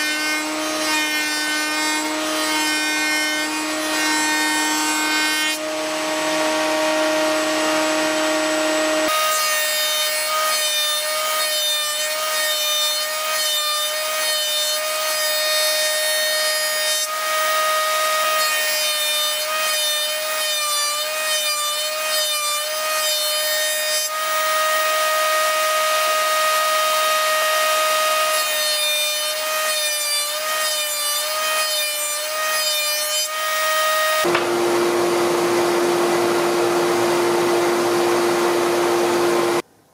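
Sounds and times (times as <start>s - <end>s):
table saw cutting board: 0.0s - 39.7s.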